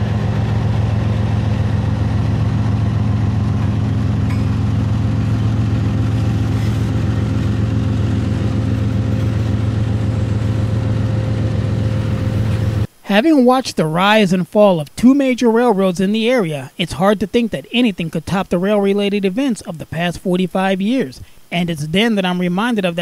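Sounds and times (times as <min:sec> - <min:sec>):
diesel locomotive engine drone: 0:00.0 - 0:13.0.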